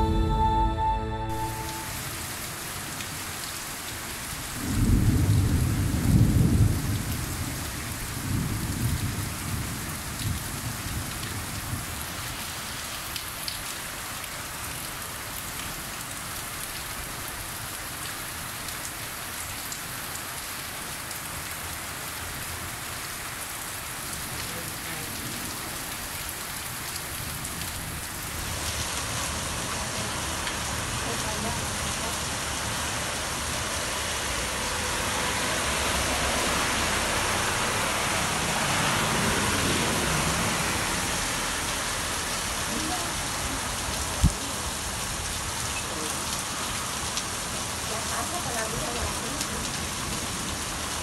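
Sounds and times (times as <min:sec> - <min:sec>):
heavy rain pouring: 0:00.0 - 0:51.0
thunder rumbling: 0:04.6 - 0:10.9.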